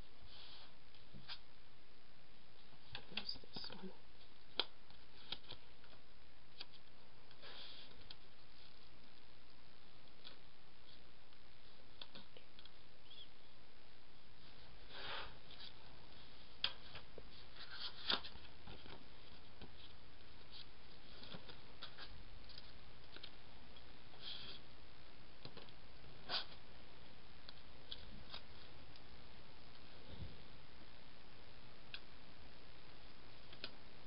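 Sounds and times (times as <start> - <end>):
paper rustling: 14.5 - 23.4.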